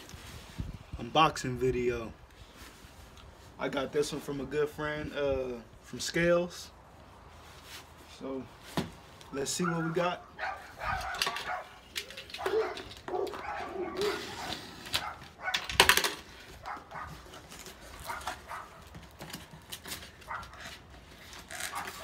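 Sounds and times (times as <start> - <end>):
cardboard flaps scraping and rustling: 10.8 - 15.5, 16.3 - 22.0
packing tape ripping: 10.9 - 22.0.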